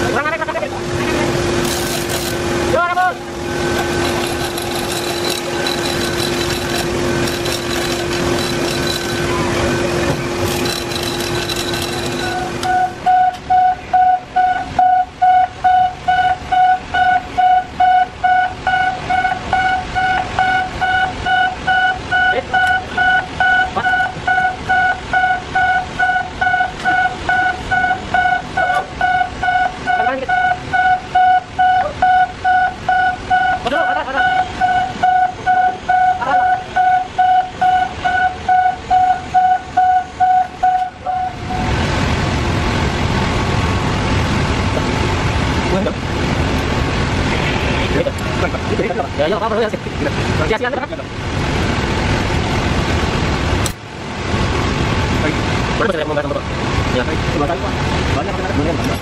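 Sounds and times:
electronic warning beeper: 3.5 - 9.9, 10.5 - 41.7.

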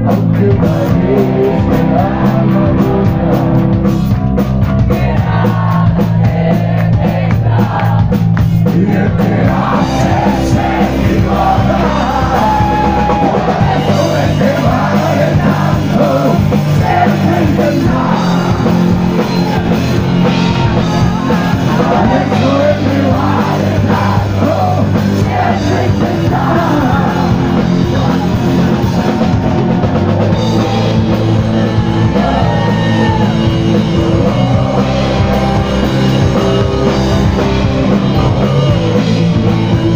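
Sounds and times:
person singing: 0.0 - 3.7, 4.9 - 39.9
distorted electric guitar: 0.0 - 39.9
drum kit: 0.0 - 39.9.

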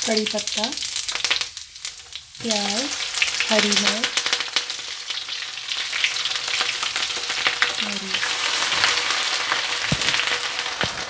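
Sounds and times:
onions frying in crackling oil: 0.0 - 11.0
spatula stirring: 7.6 - 11.0.

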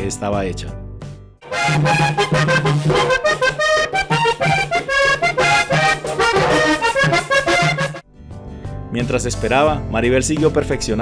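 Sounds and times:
button accordion fast melody: 1.4 - 8.0.

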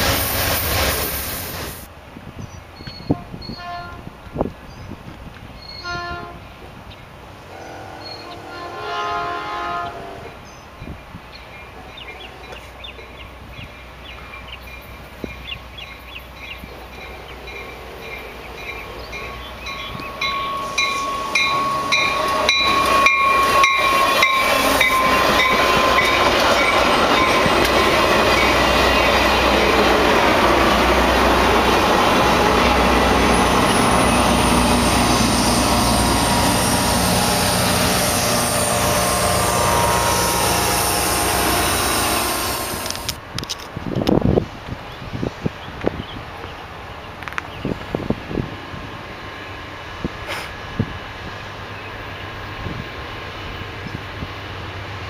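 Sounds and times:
rush of wheels on rail: 0.0 - 55.0
high steady tone: 17.0 - 43.1
train wheel clicks: 19.7 - 30.5.

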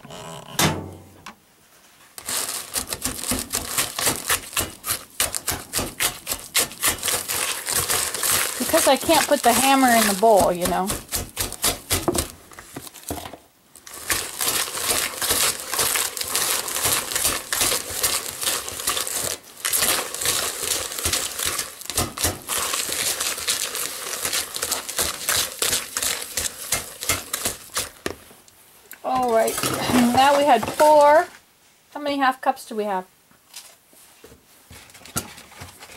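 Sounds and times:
whisk scraping in a bowl: 3.6 - 12.0, 14.0 - 28.0.

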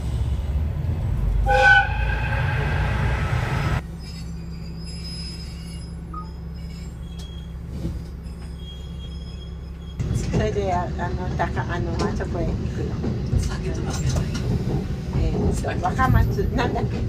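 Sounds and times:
diesel railcar rumble: 0.0 - 17.0
train horn blast: 1.4 - 3.8.

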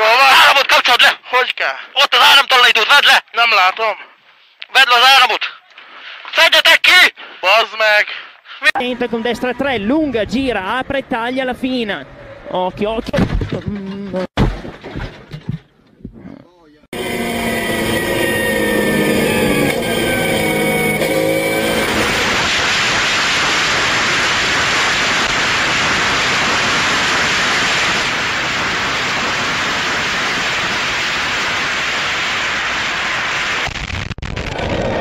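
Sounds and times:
race car engine high revs: 17.0 - 31.6
loud steady rushing noise: 17.0 - 35.0.

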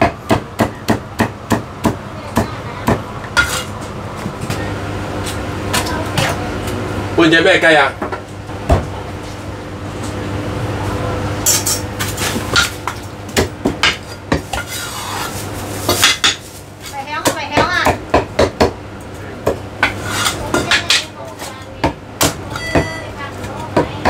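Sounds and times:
cleaver chopping meat on wood: 0.0 - 3.0, 17.2 - 18.8.

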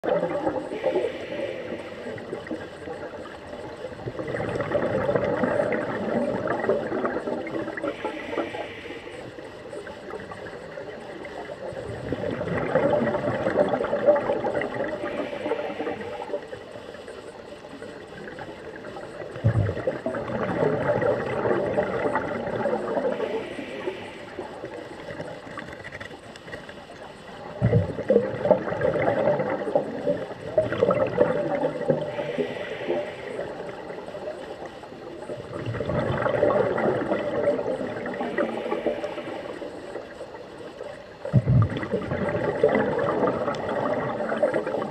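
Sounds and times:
gurgling regulator exhalation bubbles: 0.0 - 26.6, 27.2 - 44.9
regulator inhaling hiss: 0.6 - 2.9, 7.8 - 9.8, 14.8 - 17.1, 23.1 - 25.0, 31.9 - 34.6, 38.2 - 40.2.

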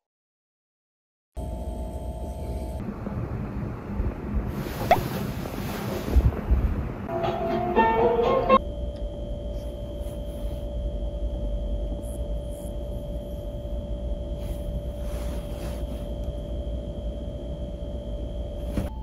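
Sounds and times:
machinery room hum: 1.4 - 19.0
constant whine: 8.2 - 19.0
faint rustles: 14.4 - 16.2.

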